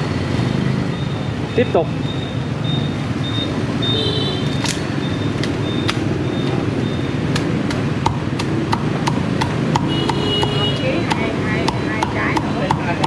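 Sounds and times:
meat cleaver chopping on wooden block: 7.3 - 13.0.

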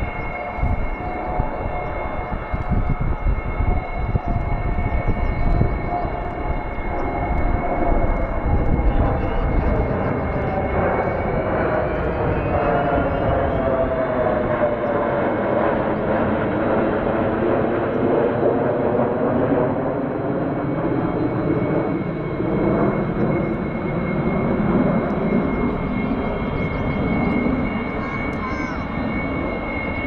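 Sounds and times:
jet fighters flying overhead: 0.0 - 30.0.

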